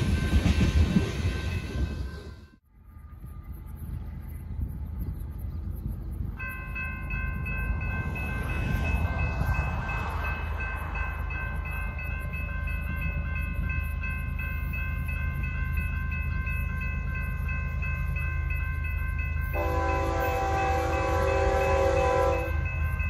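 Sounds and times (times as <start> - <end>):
freight train rumbling past: 0.0 - 23.0
crossing bell ringing: 6.2 - 23.0
locomotive horn: 19.6 - 22.6.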